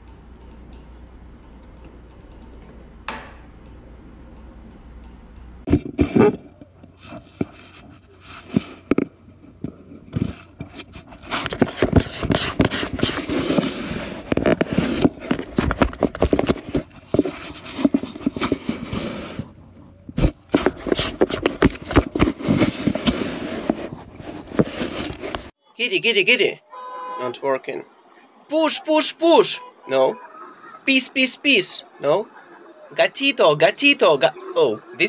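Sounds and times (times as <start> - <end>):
cat scratching at microphone: 5.6 - 25.5.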